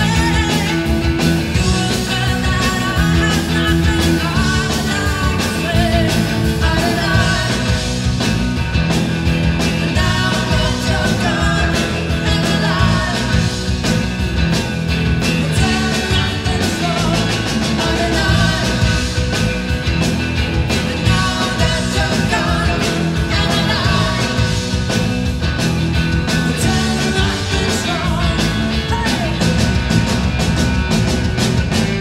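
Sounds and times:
live rock band playing: 0.0 - 32.0
person singing: 1.6 - 7.8, 9.9 - 13.6, 15.5 - 19.0, 20.8 - 24.5, 26.5 - 29.6.

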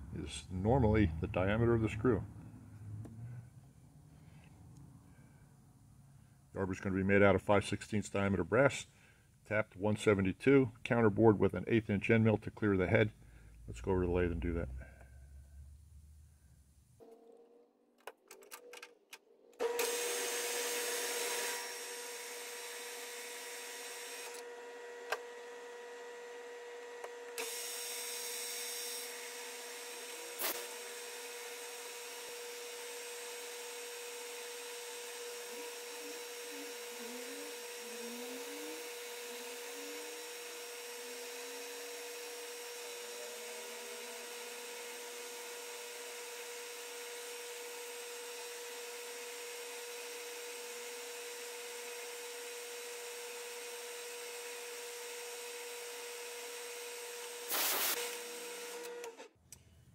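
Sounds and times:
metal lathe humming: 27.4 - 56.6.

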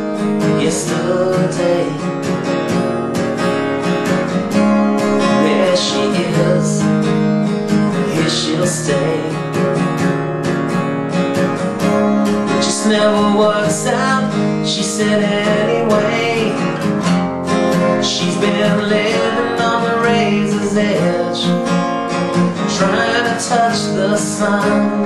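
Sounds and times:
person singing: 0.0 - 2.3, 5.0 - 7.0, 7.7 - 9.8, 12.5 - 16.9, 17.8 - 21.7, 22.5 - 25.0
acoustic guitar strumming: 0.0 - 25.0.

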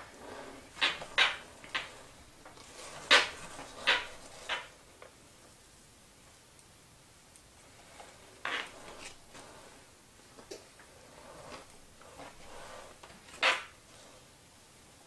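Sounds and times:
metal spatula scraping buttercream: 11.0 - 13.8.

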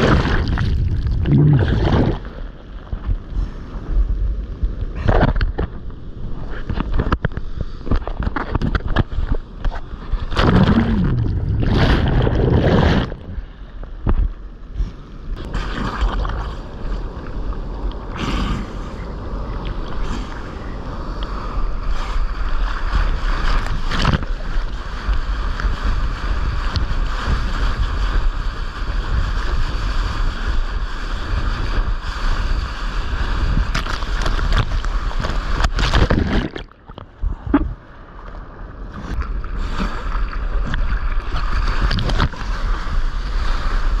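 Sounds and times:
ocean surf washing and splashing: 0.0 - 44.0
wind on microphone: 0.0 - 44.0.

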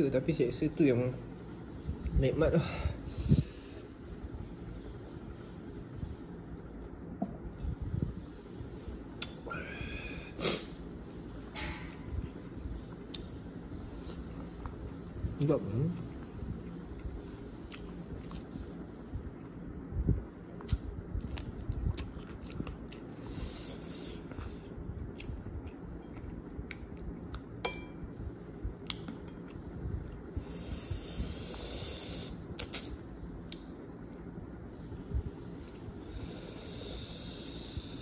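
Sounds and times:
close chewing with mouth clicks: 20.6 - 27.5
longer hissing sound: 30.5 - 32.4.

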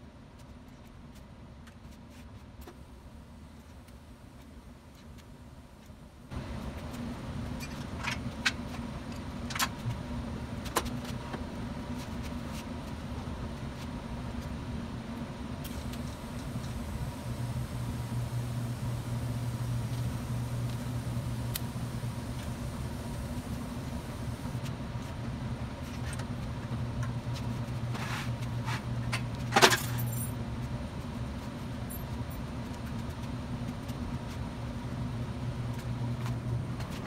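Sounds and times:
welding arc hissing: 15.6 - 24.6
low hum: 15.6 - 25.2.

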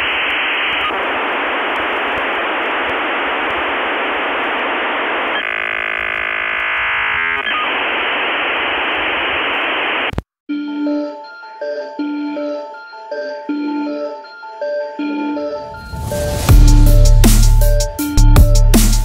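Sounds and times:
radio static hiss: 0.0 - 10.2
buzzing: 0.4 - 10.1
music with clear notes: 10.5 - 15.8.

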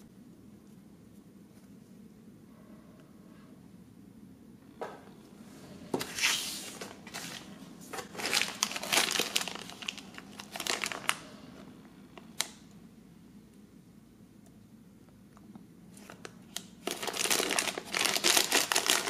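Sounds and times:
plastic bag crinkling: 6.2 - 11.6, 16.0 - 19.0.

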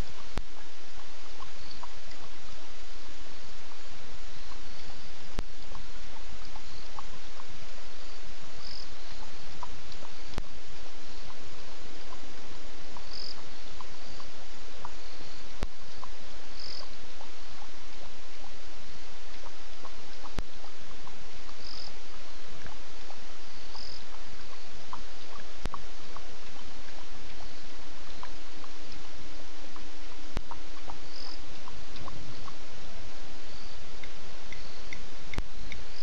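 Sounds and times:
frogs and insects calling: 0.0 - 36.0
steady hiss: 0.0 - 36.0.

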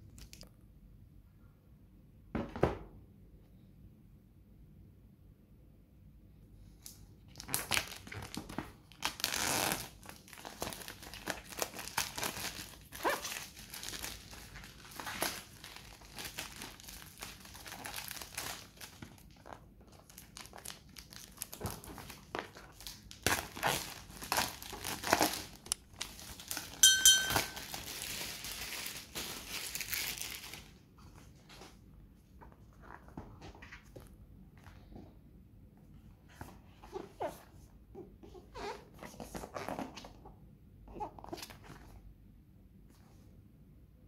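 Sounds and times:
plastic wrap crinkling and tearing: 7.3 - 30.8.

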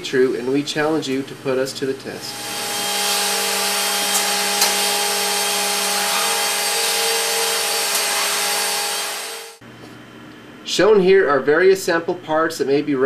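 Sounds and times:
cnc machine spindle whine and hum: 2.2 - 9.6.

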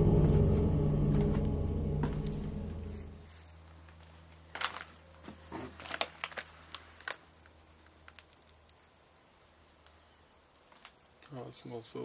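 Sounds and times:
faint low hum: 0.0 - 5.8
light clicks and crunches: 3.8 - 8.9.

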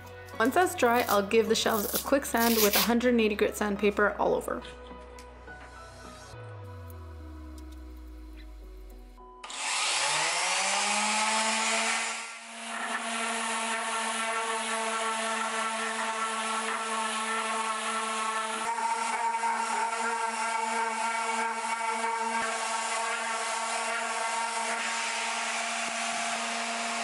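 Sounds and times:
sandpaper hissing on wood: 1.0 - 2.9
orbital sander whining: 7.0 - 27.0.

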